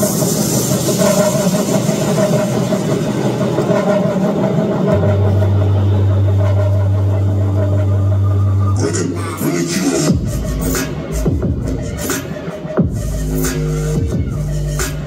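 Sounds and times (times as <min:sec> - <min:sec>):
electronic dance music: 0:00.0 - 0:15.0
heavy bass tone: 0:02.2 - 0:12.1.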